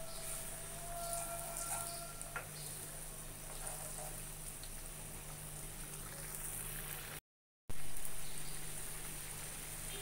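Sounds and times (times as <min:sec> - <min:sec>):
curry bubbling in a pan: 0:01.4 - 0:10.0.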